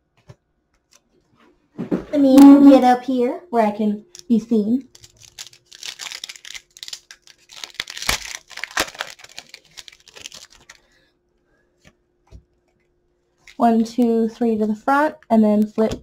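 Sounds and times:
foil wrapper crinkling: 4.1s - 11.0s.

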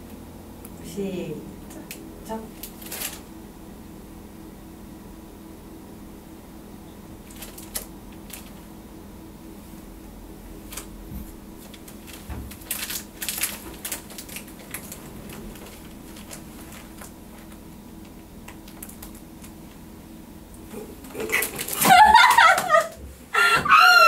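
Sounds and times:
low room hum: 0.0s - 24.0s
clothing and chairs rustling: 10.6s - 17.6s.

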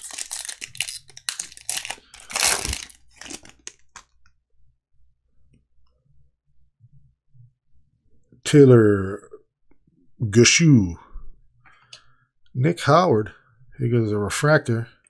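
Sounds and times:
wrapper tearing and crinkling: 0.0s - 4.0s.

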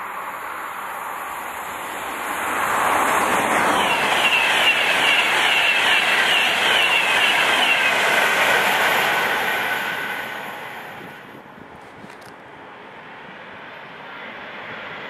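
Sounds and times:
high whines of passing carriages: 0.0s - 11.6s
electric train passing at speed: 0.0s - 15.0s.

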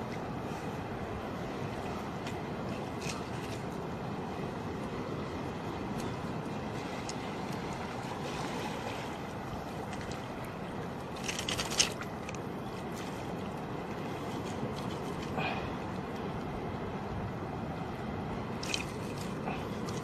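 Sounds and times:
surf washing over reef: 0.0s - 20.0s
clicks and clatter: 11.2s - 12.4s.

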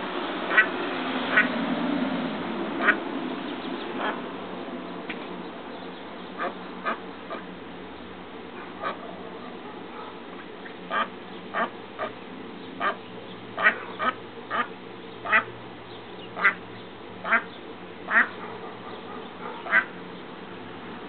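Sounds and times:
duck quacking: 0.5s - 0.7s, 2.8s - 3.0s, 4.0s - 4.2s, 6.4s - 7.5s, 8.7s - 9.0s, 10.9s - 12.2s, 12.8s - 13.0s, 13.6s - 15.5s, 16.4s - 16.6s, 17.2s - 17.5s, 18.1s - 18.4s, 19.6s - 19.9s.

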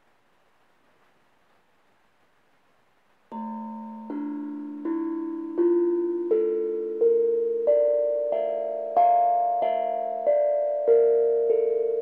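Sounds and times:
steel tongue drum notes: 3.3s - 12.0s.

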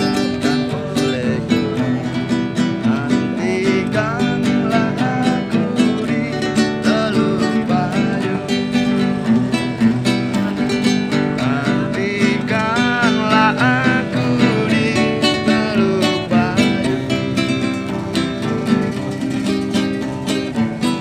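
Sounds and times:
classical guitar strummed and picked: 0.0s - 21.0s.

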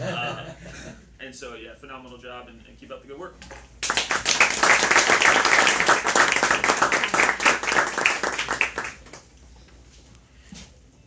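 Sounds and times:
audience applauding: 3.8s - 9.3s.

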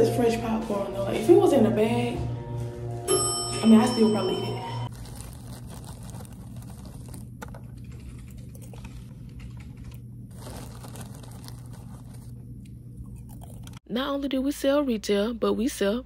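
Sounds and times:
steady low hum: 0.0s - 16.0s
plastic bag crinkling: 4.8s - 12.6s.

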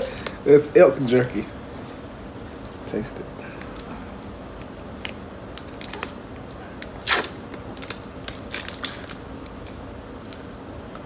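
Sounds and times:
plastic wrapper crinkling and tearing: 5.0s - 6.2s, 6.8s - 10.5s.

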